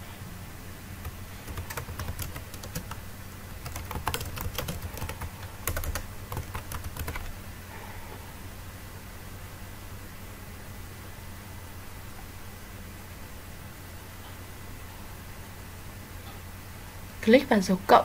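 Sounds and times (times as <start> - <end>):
steady low hum: 0.0 - 18.0
typing on computer keyboard: 1.0 - 3.0, 3.6 - 7.4.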